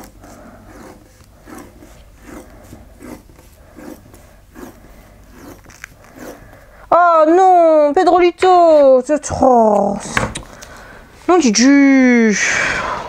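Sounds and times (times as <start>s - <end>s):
tape peeling and rubbing: 0.0s - 6.7s.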